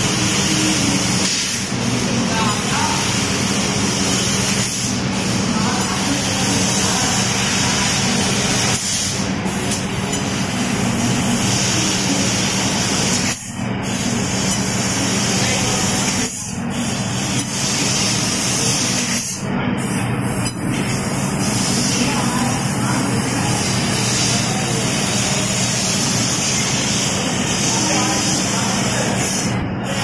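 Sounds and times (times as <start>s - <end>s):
cutting gas jet hissing: 0.0s - 19.4s.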